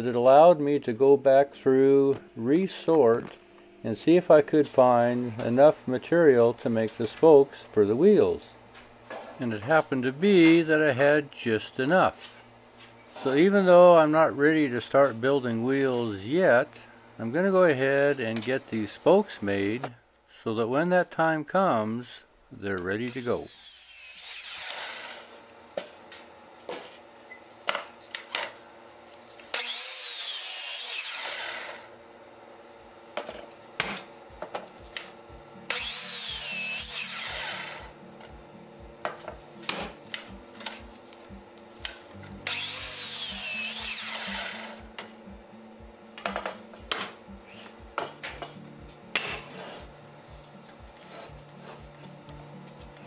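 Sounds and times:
miter saw cutting wood: 23.0 - 25.5, 29.5 - 32.0, 35.7 - 38.0, 42.4 - 45.0.

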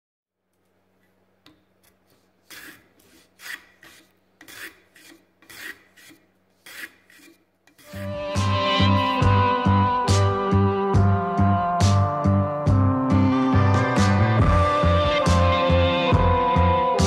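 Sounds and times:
hand plane shaving wood: 2.1 - 9.2.

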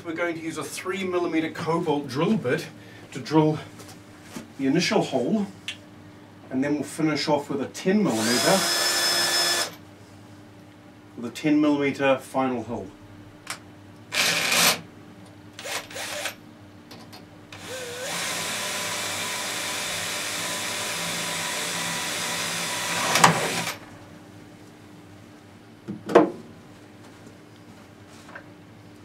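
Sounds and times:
power drill drilling into metal: 8.2 - 9.8, 14.2 - 14.8, 15.6 - 16.4, 17.6 - 23.8.

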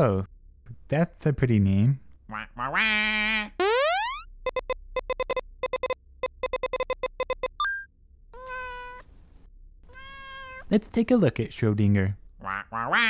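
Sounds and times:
electronic chirp: 3.6 - 7.9
short electronic beeps: 3.6 - 7.9.

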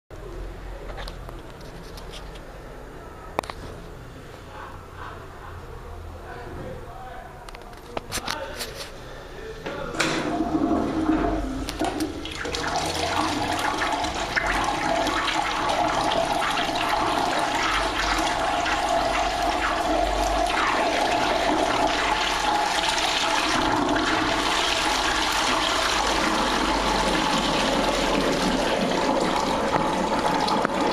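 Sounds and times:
toilet flushing: 10.0 - 30.9.

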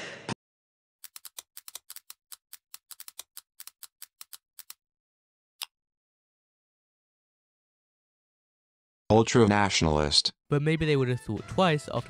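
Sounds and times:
computer keyboard typing: 1.0 - 4.8.

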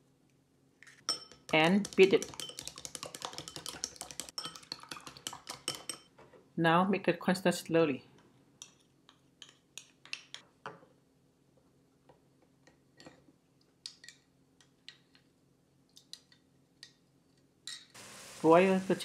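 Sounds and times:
metal spoon clinking in glass bowl: 1.1 - 6.1.

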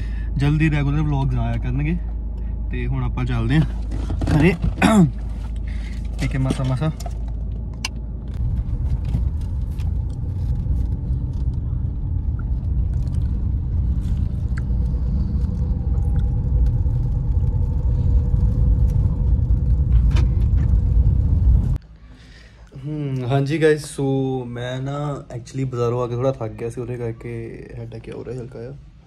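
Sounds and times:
car cabin road rumble: 0.0 - 21.8.

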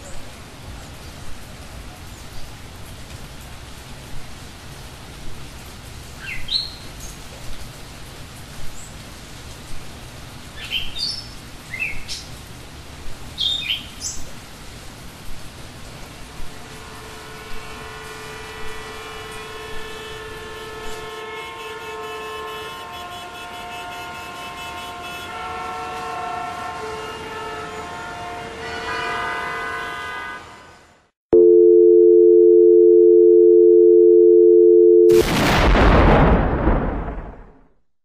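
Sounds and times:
loud steady tone: 31.4 - 35.4.

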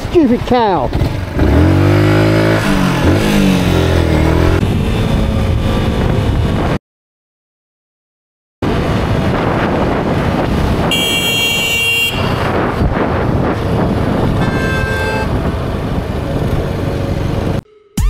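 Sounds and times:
motorcycle engine: 0.5 - 6.8, 9.8 - 17.6
wind rushing: 1.5 - 6.8, 8.6 - 11.0, 12.2 - 17.6
vehicle horn blaring: 10.9 - 12.5, 14.4 - 15.4.

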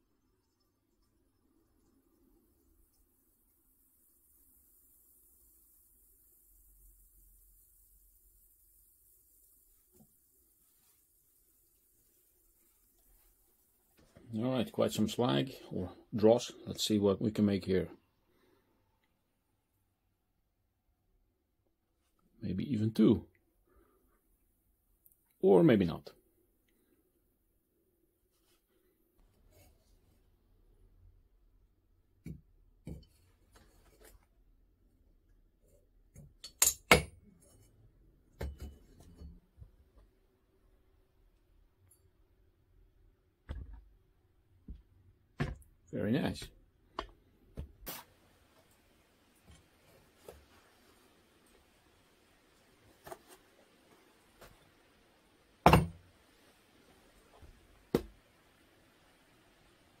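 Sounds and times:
dull knocks on metal molds: 55.7 - 56.0.

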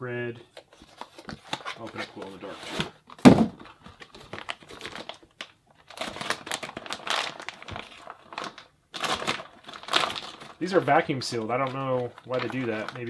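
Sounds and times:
plastic bag crinkling: 4.0 - 13.0.

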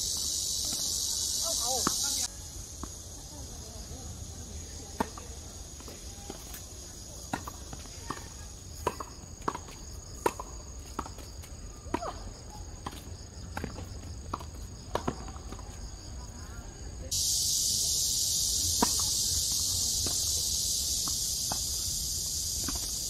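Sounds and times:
high insect drone: 0.0 - 23.0
tennis racquet hits: 1.6 - 2.9, 7.3 - 11.2, 12.8 - 15.7, 18.6 - 20.4, 22.6 - 23.0
tennis ball bounces: 1.6 - 3.0, 7.2 - 11.3, 12.7 - 16.1, 18.6 - 20.4, 21.0 - 21.8, 22.6 - 23.0.

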